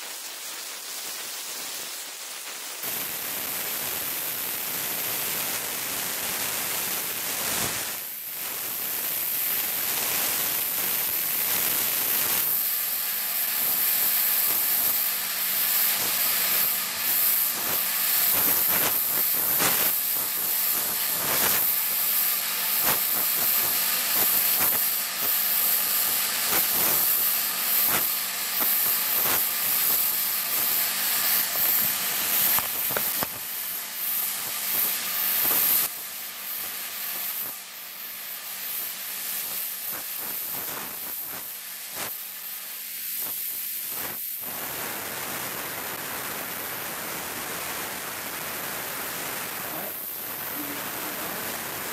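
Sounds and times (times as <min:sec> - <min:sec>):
heat gun blower: 0:00.0 - 0:51.9
high-pitched speaker hissing: 0:13.6 - 0:42.3, 0:48.3 - 0:51.9.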